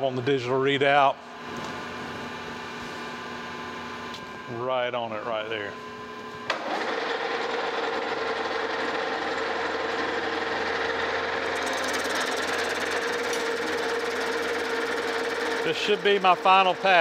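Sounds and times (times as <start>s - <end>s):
lathe running hum: 5.8s - 17.0s.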